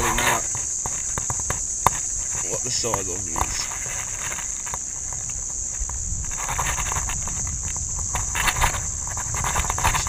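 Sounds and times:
high-pitched insect drone: 0.0 - 10.0.

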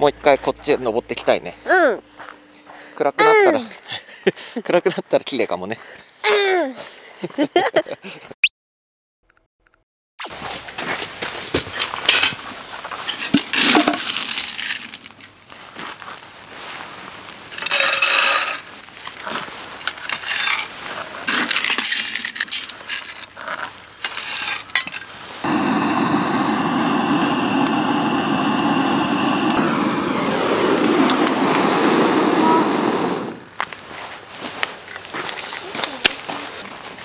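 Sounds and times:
wood pellets rattling into hopper: 13.3 - 15.2
gas torch hissing: 25.4 - 33.6.

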